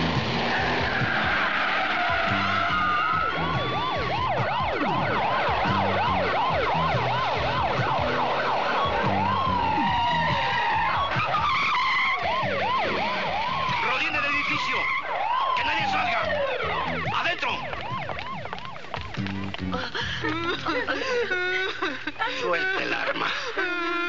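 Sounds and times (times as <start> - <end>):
siren wail: 0.0 - 21.6
car engines rumbling: 0.0 - 24.0
police sirens yelping: 0.0 - 24.0.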